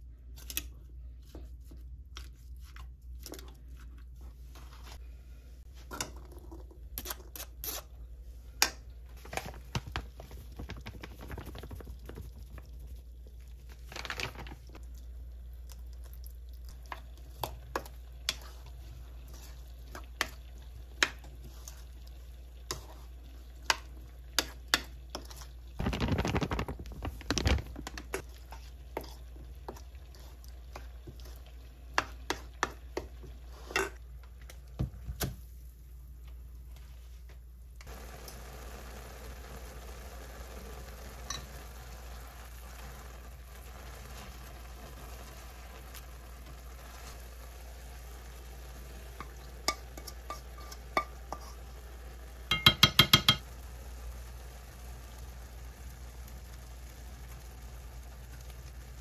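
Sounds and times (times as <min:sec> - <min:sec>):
rustling: 0:25.8 - 0:29.2.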